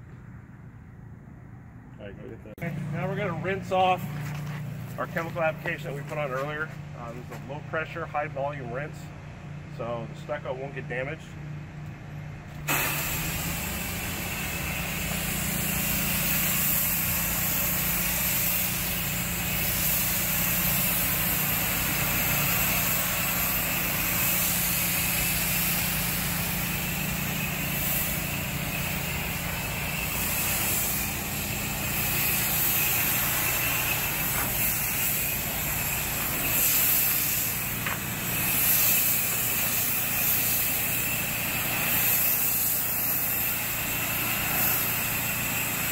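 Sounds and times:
engine-driven pump running: 0:00.0 - 0:45.9
water spray hissing on wall: 0:12.7 - 0:45.9.

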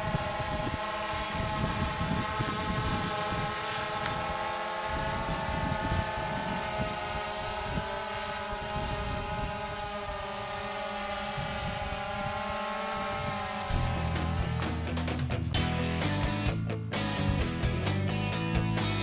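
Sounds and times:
quadcopter propellers buzzing: 0:00.0 - 0:15.7
music: 0:13.7 - 0:19.0.

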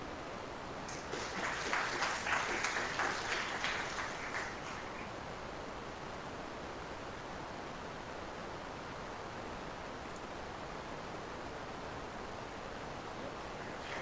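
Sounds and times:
audience applauding: 0:00.7 - 0:05.1, 0:13.3 - 0:14.0.

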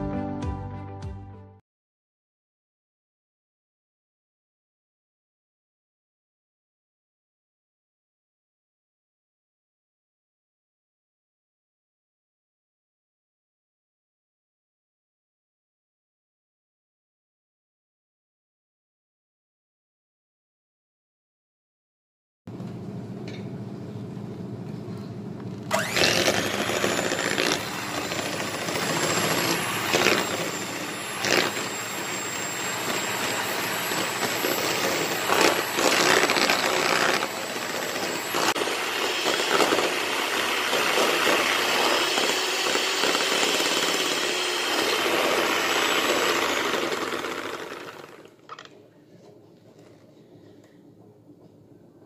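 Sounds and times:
electric hand mixer running: 0:25.7 - 0:48.7.

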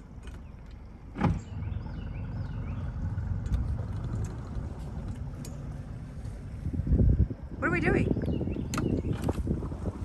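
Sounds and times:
outboard motor low rumble: 0:00.0 - 0:10.0.

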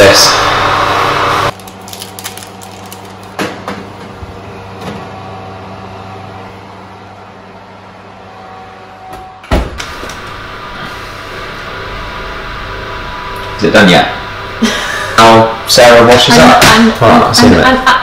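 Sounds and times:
steady low hum: 0:00.0 - 0:18.0
oven door thumping shut: 0:09.5 - 0:09.8.

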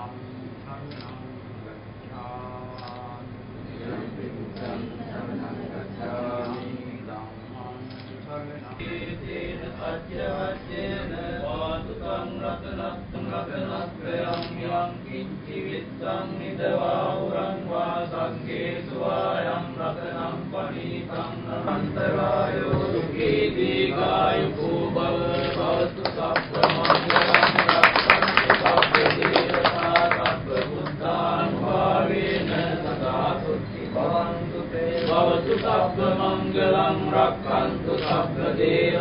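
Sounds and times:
sharp crackling clicks: 0:00.9 - 0:01.2, 0:02.7 - 0:03.1, 0:07.8 - 0:08.8, 0:14.3 - 0:14.6
group of voices chanting: 0:08.8 - 0:39.0.

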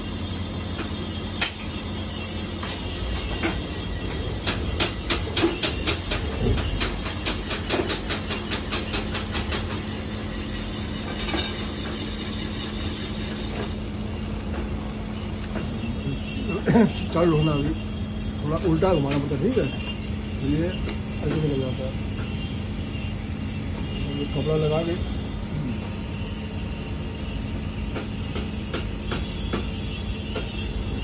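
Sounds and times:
boring machine motor humming: 0:00.0 - 0:07.5.

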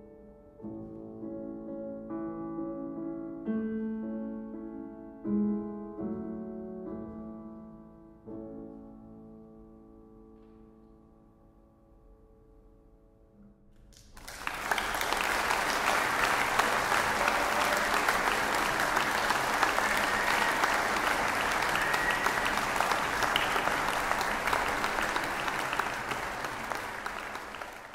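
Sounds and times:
large audience applauding: 0:14.0 - 0:27.9.

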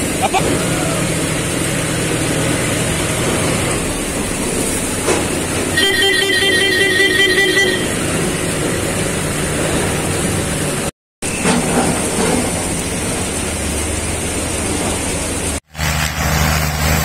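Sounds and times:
tractor engines running: 0:00.0 - 0:17.0
pulsing vehicle horn: 0:05.7 - 0:08.3
rain hissing: 0:12.0 - 0:17.0.

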